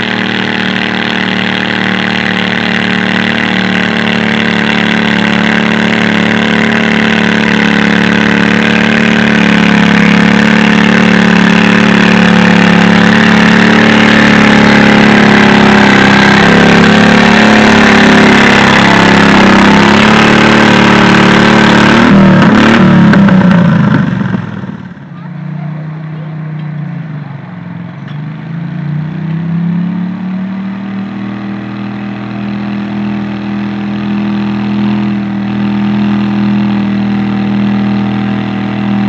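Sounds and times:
tractor engine running at high revs: 0.0s - 39.0s.

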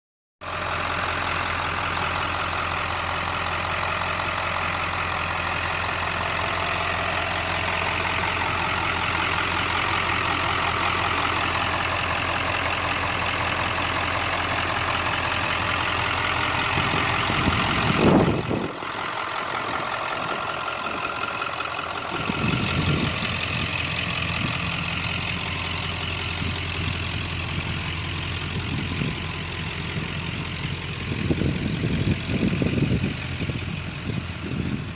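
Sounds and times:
truck engine idling: 0.4s - 34.9s.

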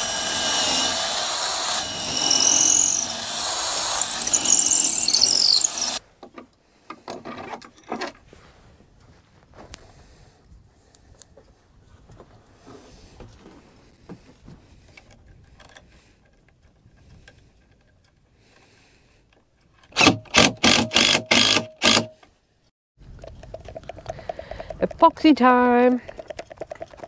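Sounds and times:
metallic handling clatter: 7.0s - 8.2s.

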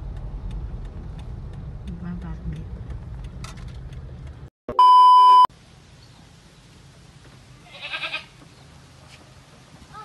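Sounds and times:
test-tone beep: 4.7s - 5.5s
goat bleating: 7.6s - 8.4s.

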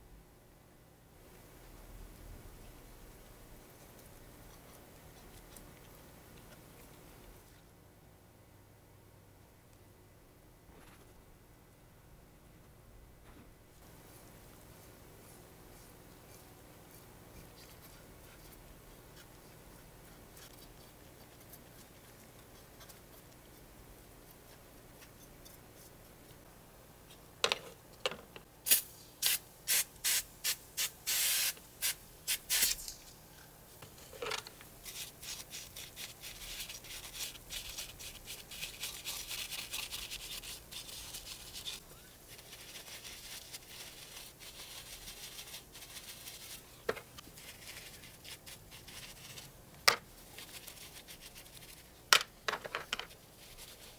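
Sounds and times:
faint brushing: 13.2s - 27.2s, 32.5s - 52.1s, 53.0s - 53.9s
brush scrubbing: 14.1s - 26.4s, 34.8s - 49.5s, 50.2s - 52.0s, 53.1s - 53.9s
trigger sprayer hissing: 28.7s - 32.9s.

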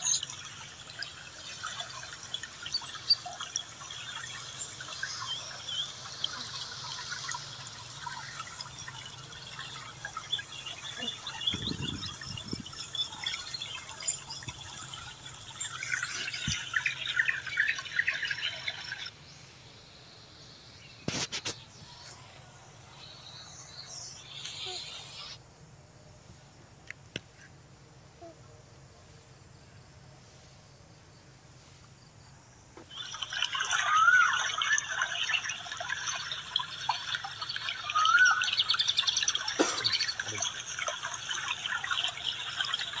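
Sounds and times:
outdoor background: 0.0s - 43.0s
birds chirping: 1.4s - 19.5s, 35.4s - 43.0s
whistled bird call: 32.9s - 36.4s, 37.0s - 40.6s.

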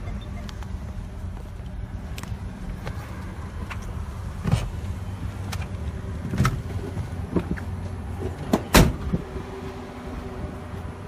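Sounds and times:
car door shutting: 8.4s - 9.2s.

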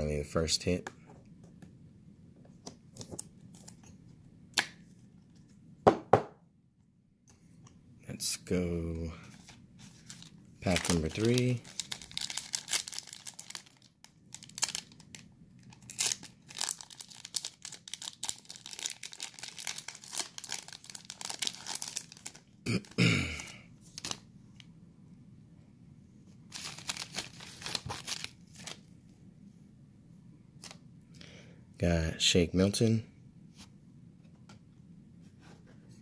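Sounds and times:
foil wrapper crinkling: 9.4s - 22.5s, 23.9s - 24.2s, 26.5s - 28.8s.

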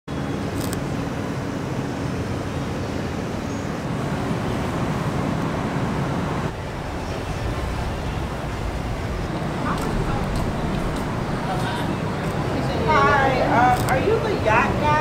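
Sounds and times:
low outdoor rumble: 3.2s - 15.0s.

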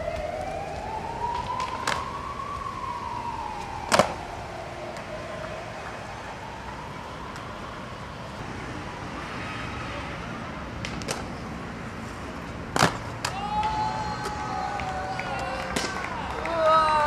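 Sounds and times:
city traffic noise: 0.0s - 17.0s
skateboard clacking on concrete: 3.9s - 4.2s.

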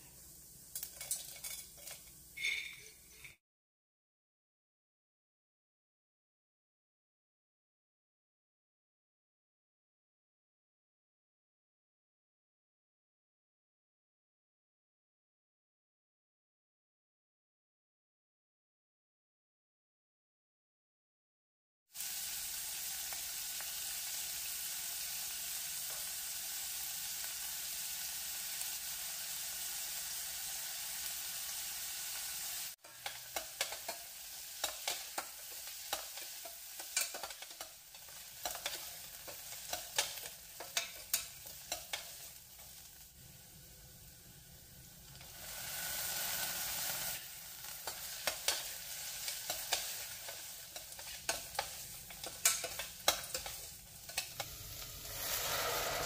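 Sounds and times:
onions sizzling in oil: 0.0s - 3.3s, 21.9s - 56.0s
spatula scraping a pan: 0.8s - 3.4s, 47.8s - 56.0s.

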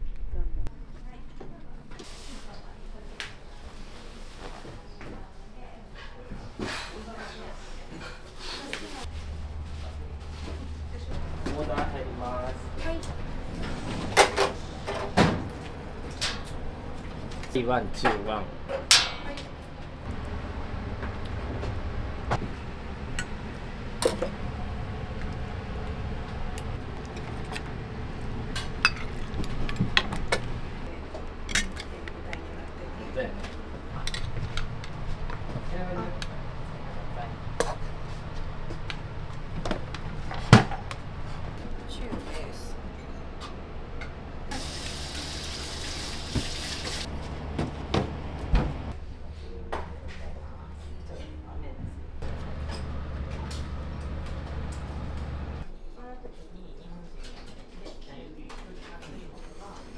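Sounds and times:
steady low hum: 9.0s - 44.5s, 47.0s - 55.7s
metal ladle clinking on pans: 18.8s - 19.4s.

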